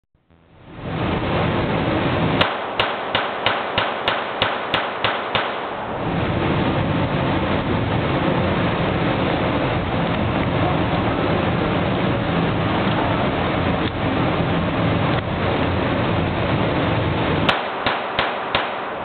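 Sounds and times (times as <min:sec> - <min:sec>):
steady rushing noise: 0:00.2 - 0:19.0
pistol shots: 0:02.4 - 0:05.9, 0:17.5 - 0:19.0.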